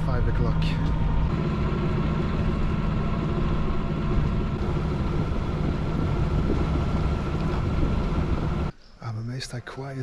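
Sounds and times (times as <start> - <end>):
boat diesel engine running: 0.0 - 8.7
hiss of water and wind: 1.4 - 9.0.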